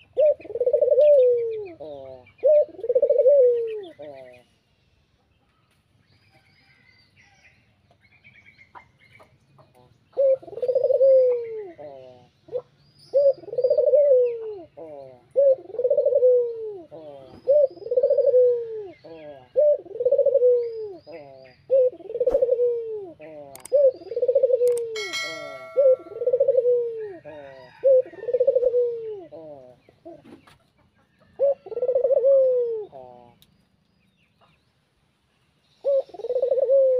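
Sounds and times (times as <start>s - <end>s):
dove cooing: 0.0s - 4.4s, 10.2s - 30.6s, 31.2s - 33.4s, 35.8s - 36.9s.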